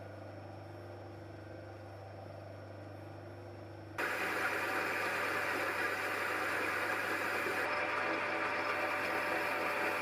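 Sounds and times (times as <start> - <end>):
steady low hum: 0.0 - 10.0
lathe running: 4.0 - 10.0.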